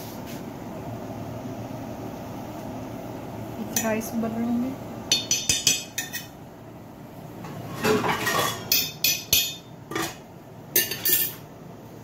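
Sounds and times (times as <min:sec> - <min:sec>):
metal spoon clinking in pot: 0:05.1 - 0:06.3, 0:07.9 - 0:10.2, 0:10.8 - 0:11.4.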